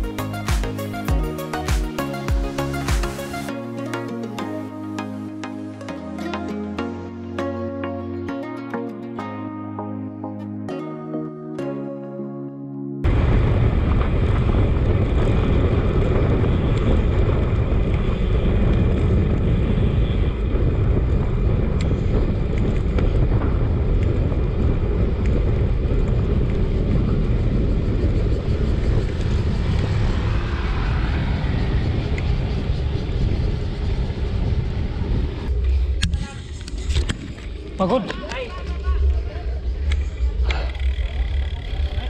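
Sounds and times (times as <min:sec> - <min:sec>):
wind buffeting microphone: 0:13.1 - 0:42.0.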